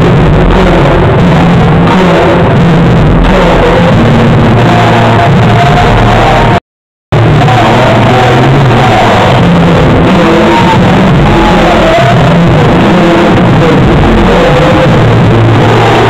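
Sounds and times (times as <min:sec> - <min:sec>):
loud music with wavering melody: 0:07.2 - 0:16.0.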